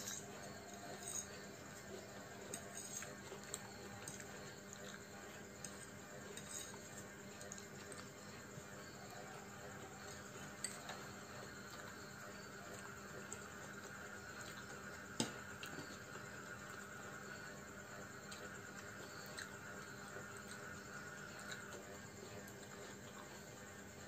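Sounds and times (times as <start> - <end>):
light clinks and scrapes: 0.0 - 1.4, 6.3 - 6.9
faint steady hum: 0.0 - 24.0.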